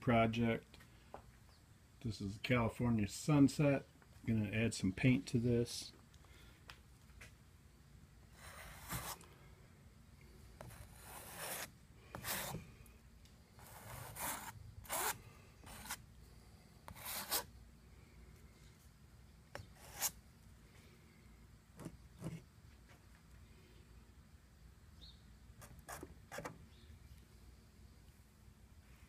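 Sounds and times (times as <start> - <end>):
paint scraping on canvas: 8.3 - 9.2, 10.6 - 12.6, 13.6 - 16.0, 16.9 - 17.5, 19.6 - 20.2.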